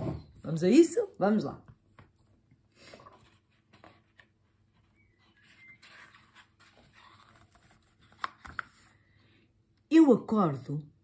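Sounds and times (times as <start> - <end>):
book pages rustling: 1.9 - 9.1.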